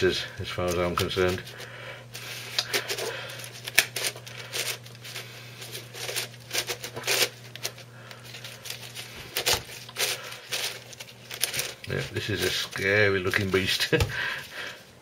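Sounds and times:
plastic puzzle clicking and rattling: 9.4s - 13.0s.

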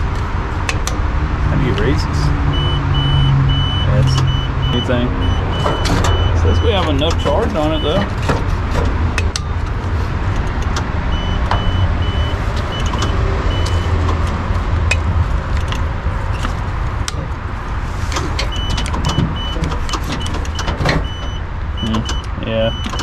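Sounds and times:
steady low rumble: 0.0s - 18.7s
short electronic beeps: 2.5s - 8.1s, 11.1s - 14.0s.

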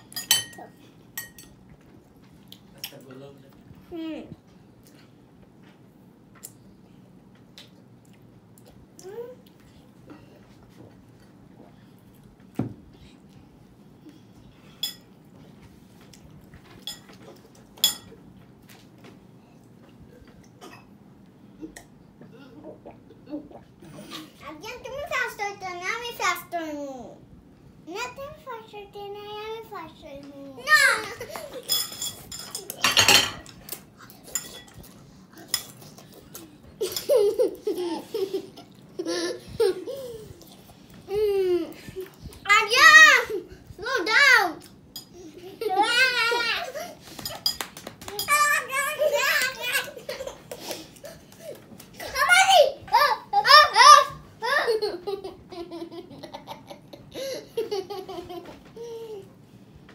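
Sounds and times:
forks clinking on ceramic bowls: 0.0s - 0.6s, 1.2s - 1.6s, 16.8s - 17.2s, 17.8s - 18.2s, 31.6s - 33.5s, 34.3s - 34.8s
children giggling: 36.8s - 40.3s, 54.4s - 59.3s.

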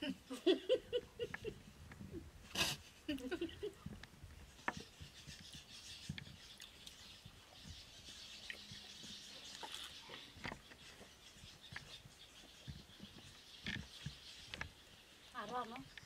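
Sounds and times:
chewing and lip smacks: 8.4s - 10.6s.

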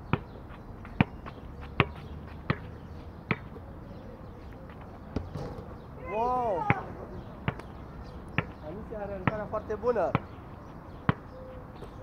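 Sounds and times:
basketball bouncing on hard court: 1.8s - 2.7s, 9.2s - 9.5s.

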